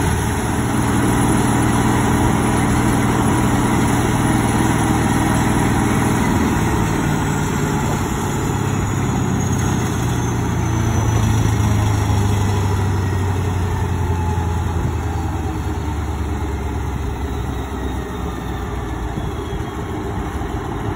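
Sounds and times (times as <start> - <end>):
diesel engine running: 0.0 - 20.9.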